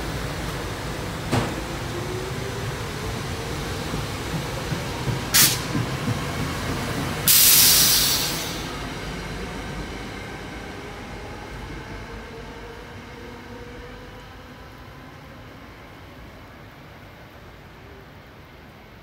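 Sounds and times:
train rumbling along rails: 0.0s - 19.0s
sharp air hiss: 5.3s - 5.7s, 7.3s - 8.8s.

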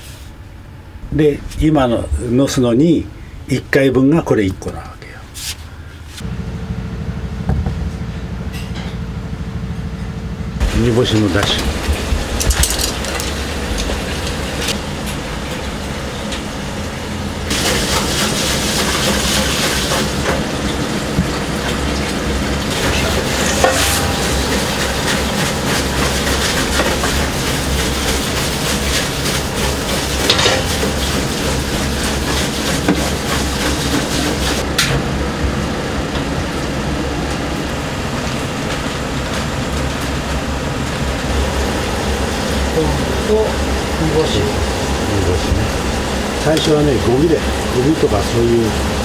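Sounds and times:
low rumble: 6.2s - 15.8s, 22.2s - 27.6s.

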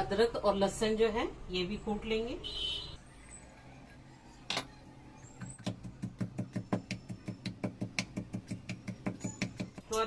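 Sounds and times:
pestle pounding in steel mortar: 5.6s - 10.0s.

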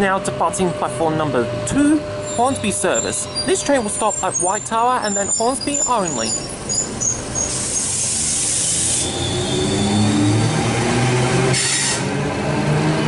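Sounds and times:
train brake hiss: 7.4s - 10.0s, 11.6s - 12.1s.

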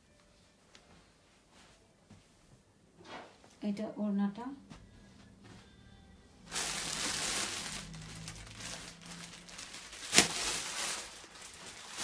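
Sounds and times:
cloth and packaging rustling: 6.4s - 12.0s.

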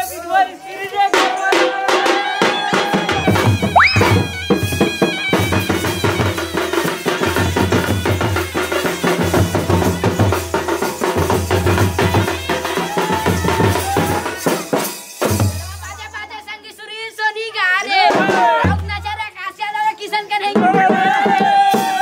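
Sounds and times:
drums beating fast rhythm: 1.1s - 16.2s, 18.0s - 19.2s, 20.4s - 22.0s
shrill wind instrument melody: 3.3s - 10.6s.

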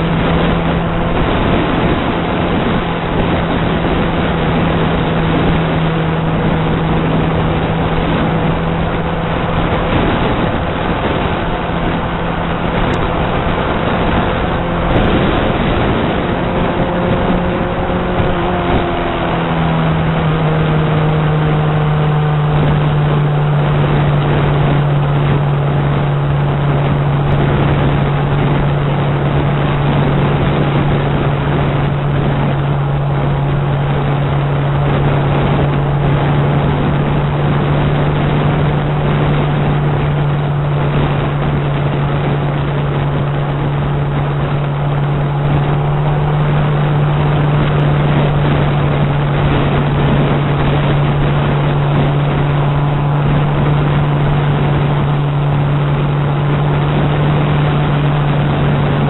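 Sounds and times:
motorcycle engine droning: 0.0s - 59.0s
wind noise: 0.0s - 59.0s.

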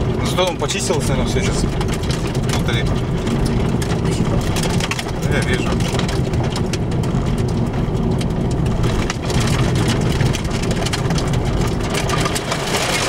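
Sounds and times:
road noise rumble: 0.0s - 13.0s
stones ticking against car body: 0.0s - 13.0s
tyres on loose stone chippings: 0.0s - 13.0s.

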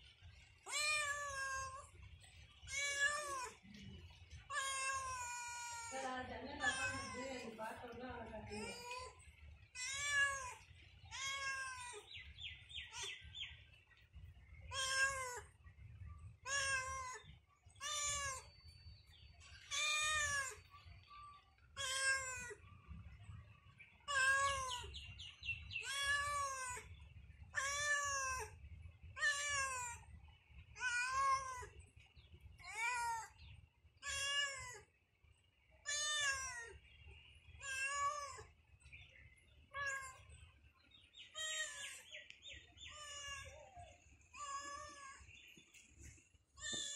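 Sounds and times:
cat meowing: 0.7s - 1.9s, 2.7s - 3.6s, 4.5s - 7.5s, 9.8s - 12.1s, 14.7s - 15.5s, 16.4s - 17.2s, 17.8s - 18.5s, 19.7s - 20.7s, 21.8s - 22.6s, 24.1s - 24.9s, 25.8s - 26.8s, 27.6s - 28.5s, 29.2s - 30.0s, 30.8s - 31.8s, 34.0s - 34.8s, 35.9s - 36.8s, 37.6s - 38.5s, 39.8s - 40.2s, 41.4s - 42.0s, 42.9s - 45.2s.

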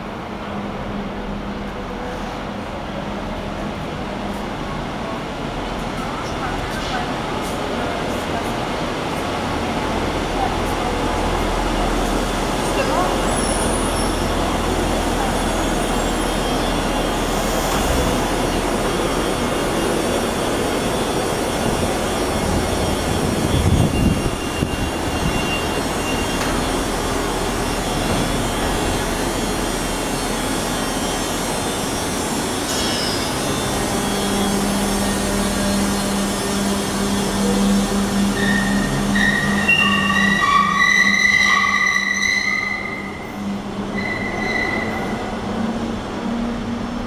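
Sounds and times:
low hum of arriving tram: 0.0s - 47.0s
tram rumbling: 0.0s - 47.0s.

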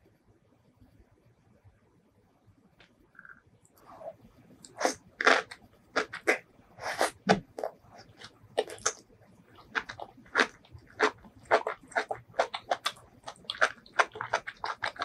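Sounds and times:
person chewing crunchy food: 4.6s - 15.0s.

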